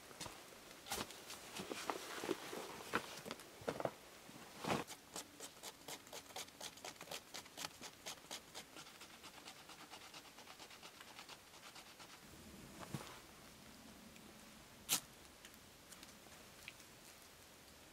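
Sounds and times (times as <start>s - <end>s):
knife scraping bark: 4.8s - 9.0s.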